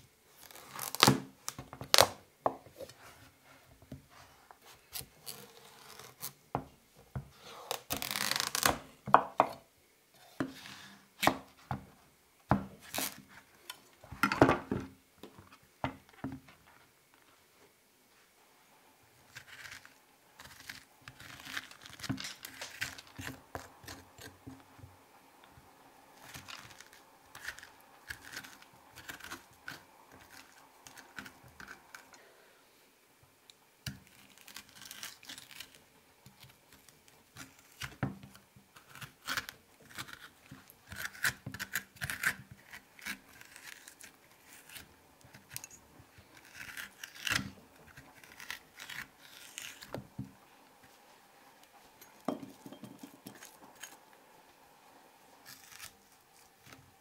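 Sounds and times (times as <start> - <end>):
metal spoon scraping squash: 38.8 - 50.0.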